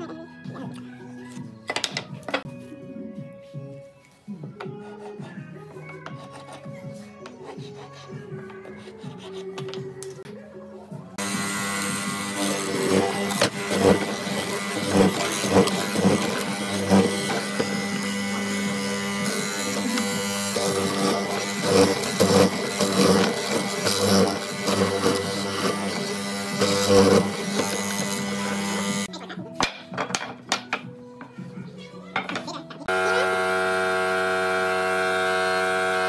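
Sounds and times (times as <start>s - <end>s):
mortiser motor hum: 11.2s - 29.1s, 32.9s - 36.0s.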